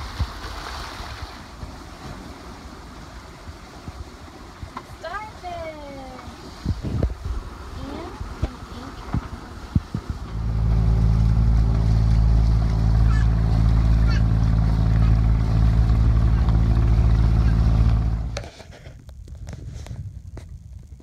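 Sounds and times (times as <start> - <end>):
water washing: 0.0 - 18.4
boat engine droning: 7.2 - 18.6.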